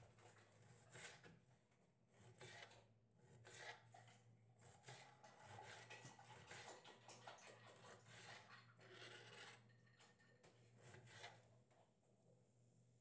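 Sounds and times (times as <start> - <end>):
knife cutting on cutting board: 0.6 - 1.3, 2.2 - 6.8, 8.1 - 9.6, 10.8 - 11.4.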